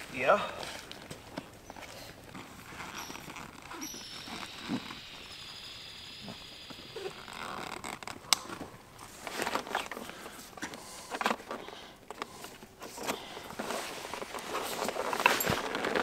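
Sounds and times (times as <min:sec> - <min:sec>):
camping gear rustling: 0:00.0 - 0:16.0
zipper sounds: 0:01.8 - 0:05.3, 0:06.2 - 0:08.4.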